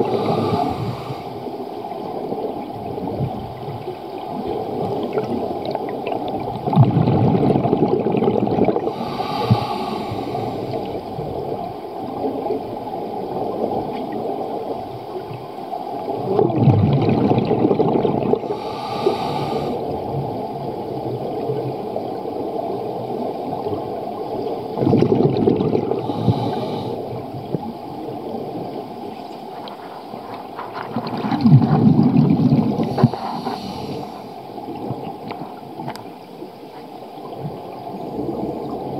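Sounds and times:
regulator inhale hiss: 0.0s - 1.6s, 8.9s - 11.0s, 18.4s - 19.9s, 26.0s - 27.2s, 32.8s - 34.5s
exhaled bubbles gushing underwater: 0.0s - 36.1s, 37.1s - 38.9s.

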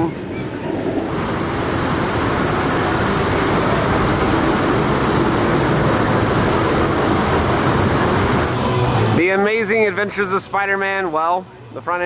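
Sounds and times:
water cannon spraying: 0.0s - 9.4s.

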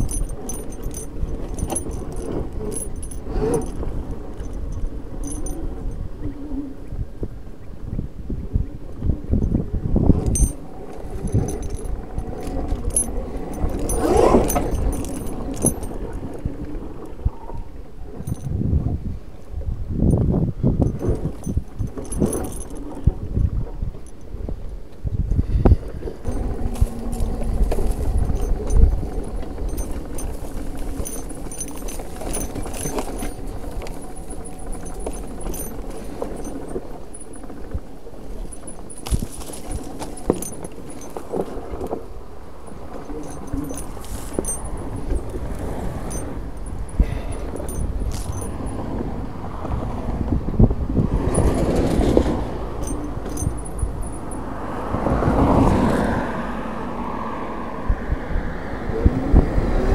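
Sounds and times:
motorcycle rattling and knocking: 0.0s - 6.0s, 9.4s - 17.1s, 20.8s - 24.3s, 26.2s - 42.1s, 42.7s - 49.2s, 51.2s - 55.0s
tyre and wind rumble: 0.0s - 59.9s.

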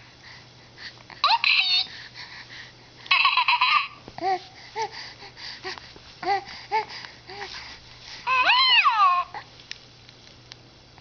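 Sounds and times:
baby squealing: 3.1s - 4.0s, 8.3s - 9.4s
baby cooing: 3.1s - 4.4s, 8.3s - 9.5s.

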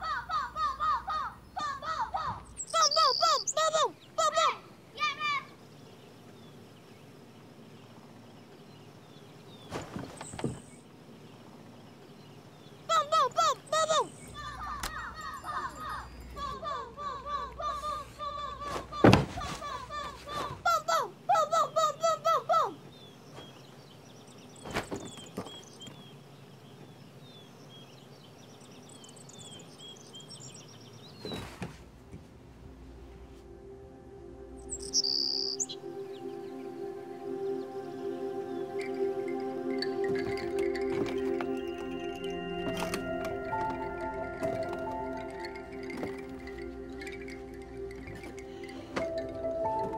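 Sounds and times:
small birds chirping: 0.0s - 33.5s, 34.3s - 49.9s
faint steady hiss: 0.0s - 49.9s
low steady music drone: 31.9s - 49.9s.

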